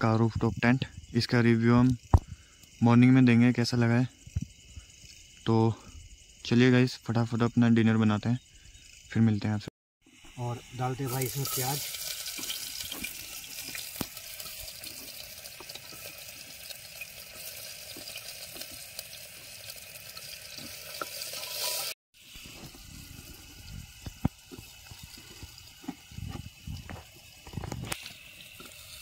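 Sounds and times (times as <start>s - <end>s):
onions sizzling in hot oil: 10.0s - 29.0s.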